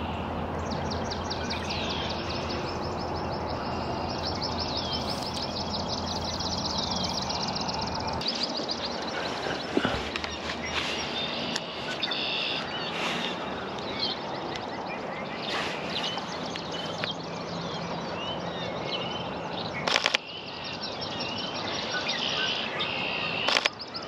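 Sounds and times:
buzzy bird trill: 0:00.0 - 0:12.7
birds chirping and calling: 0:00.0 - 0:24.0
steady outdoor hiss: 0:00.0 - 0:24.0
rapid sharp clicks: 0:19.9 - 0:20.2, 0:23.5 - 0:23.8.

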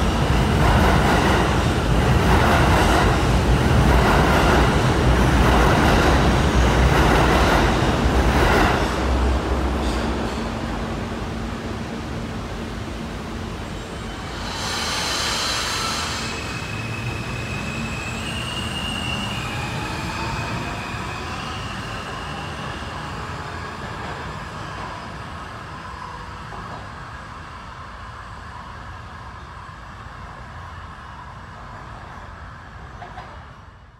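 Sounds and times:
train air hiss: 0:13.7 - 0:19.4.

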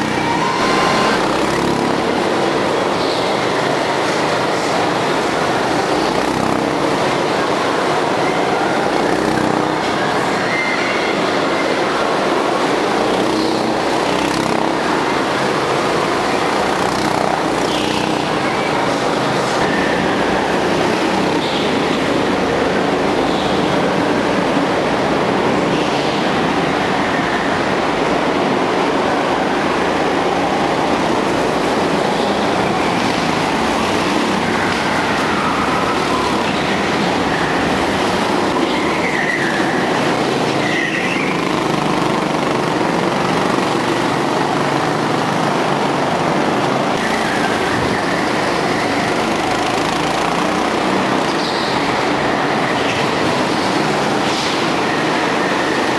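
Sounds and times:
go-kart engines revving: 0:00.0 - 0:55.9
brief high squeals: 0:00.2 - 0:01.3.

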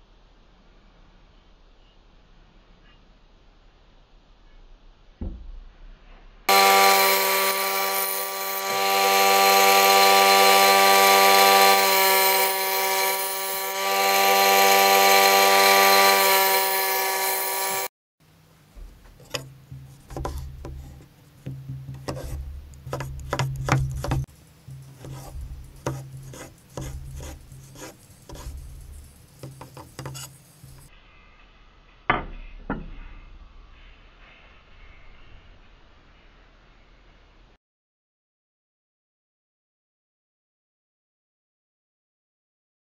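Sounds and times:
bench grinder grinding blade: 0:06.5 - 0:17.9, 0:22.0 - 0:30.9
knife chopping on wooden board: 0:19.1 - 0:30.9.

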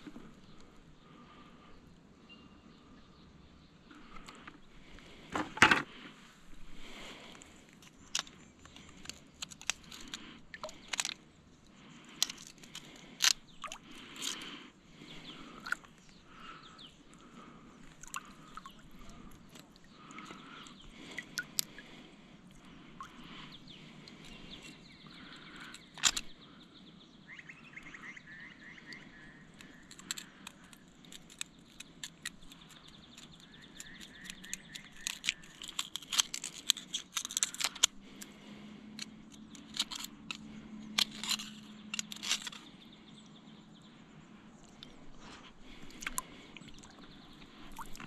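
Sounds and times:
knife scraping oyster shell: 0:07.7 - 0:11.2, 0:12.1 - 0:14.5, 0:29.6 - 0:38.3, 0:39.0 - 0:42.7.

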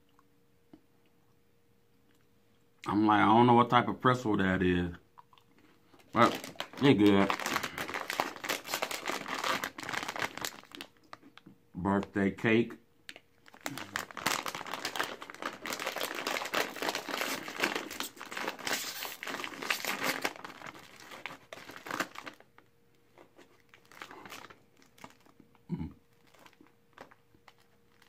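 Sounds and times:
plastic bag crinkling and tearing: 0:06.0 - 0:11.4, 0:13.4 - 0:25.4, 0:26.1 - 0:28.0.

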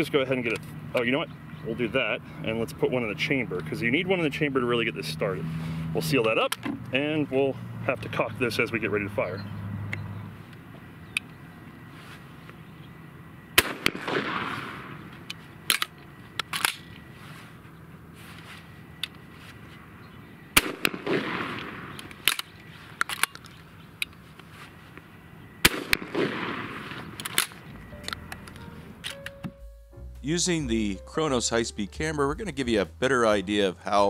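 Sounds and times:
shotgun shots with echo: 0:13.6 - 0:15.1, 0:20.6 - 0:22.4, 0:25.6 - 0:27.6
metallic clicks of gun action: 0:15.2 - 0:17.1, 0:21.9 - 0:24.2, 0:27.2 - 0:29.4.

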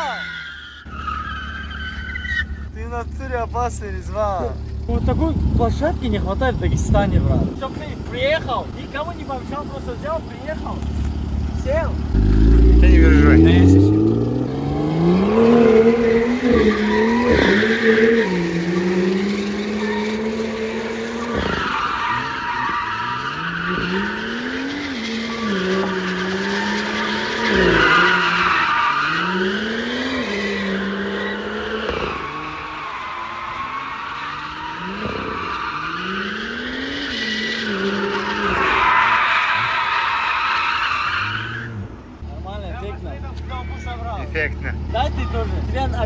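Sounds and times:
tyres squealing: 0:00.0 - 0:04.9, 0:07.6 - 0:42.0
car engine revving: 0:01.1 - 0:46.0.

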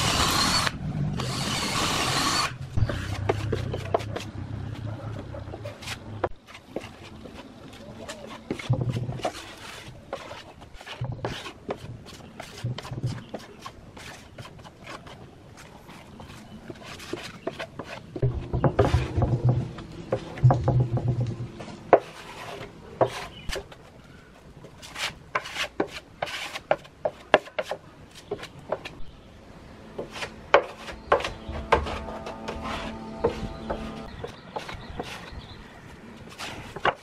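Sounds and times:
brush scraping on plywood: 0:05.6 - 0:20.3, 0:21.0 - 0:23.8, 0:24.8 - 0:29.0, 0:30.0 - 0:35.6, 0:36.2 - 0:37.0
low hum: 0:29.4 - 0:34.3.

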